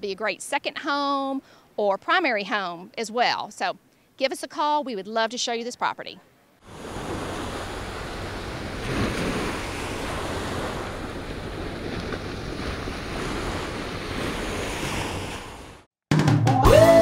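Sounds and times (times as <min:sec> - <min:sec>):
wind: 0:00.0 - 0:15.9
ocean surf: 0:06.6 - 0:15.9
music: 0:16.1 - 0:17.0.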